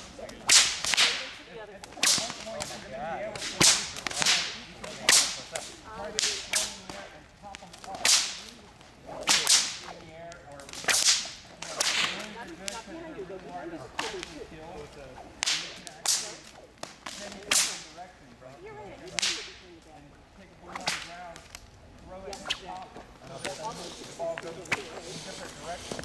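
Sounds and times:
whips cracking: 0:00.0 - 0:12.8, 0:14.0 - 0:14.4, 0:15.2 - 0:18.0, 0:19.1 - 0:19.6, 0:20.6 - 0:21.6, 0:22.3 - 0:22.8.

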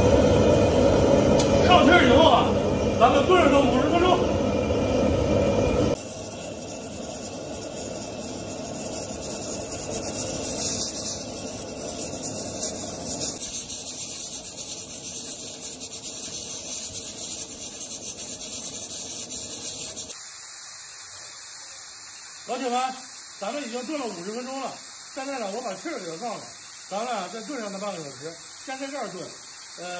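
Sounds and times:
pressure cooker steam hiss: 0:05.0 - 0:29.9.

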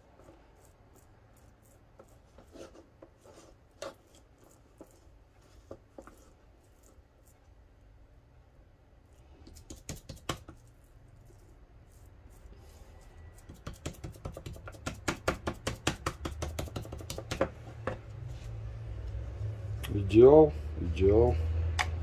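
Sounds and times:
hands slapping minced meat: 0:09.4 - 0:10.8, 0:13.4 - 0:17.5.

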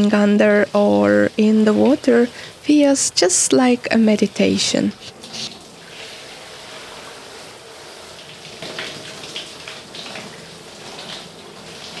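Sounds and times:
shower water running: 0:00.0 - 0:12.0.

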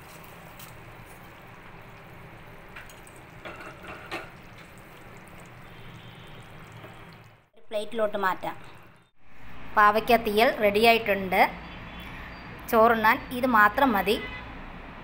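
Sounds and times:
tempering poured into pot: 0:00.0 - 0:07.4
thick curry bubbling: 0:00.0 - 0:07.5.

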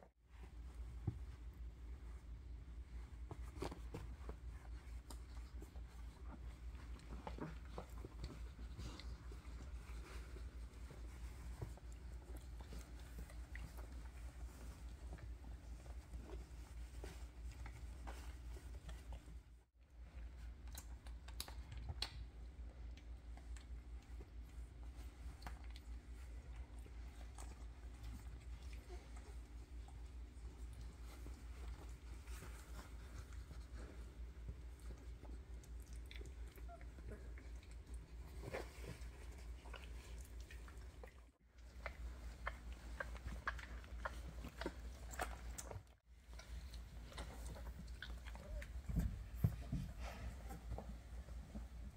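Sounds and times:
low steady hum: 0:00.0 - 0:51.9
puppies suckling clicks: 0:20.2 - 0:51.8.

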